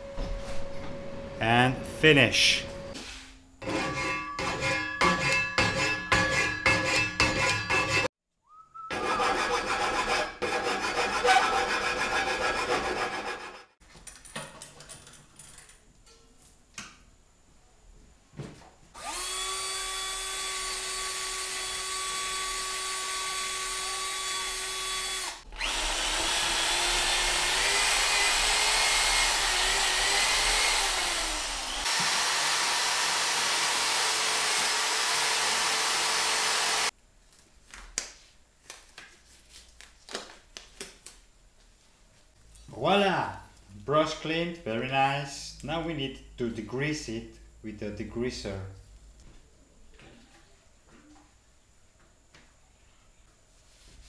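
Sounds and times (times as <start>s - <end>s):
angle grinder cutting steel: 3.6s - 8.1s, 8.9s - 13.7s, 19.0s - 36.9s.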